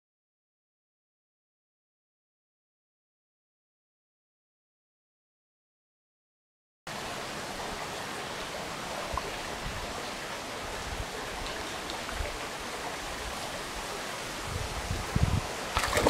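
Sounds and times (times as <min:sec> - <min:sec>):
creek water rushing: 0:06.9 - 0:16.0.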